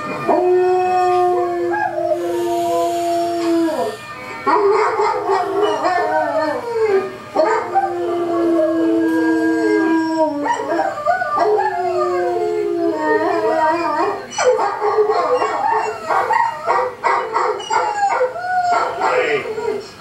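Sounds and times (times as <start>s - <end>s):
dog howling: 0.0s - 20.0s.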